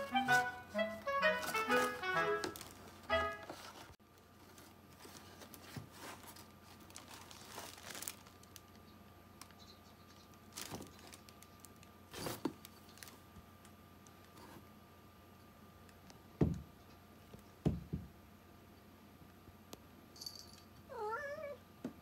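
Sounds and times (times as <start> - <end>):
music snippet: 0.0 - 3.6.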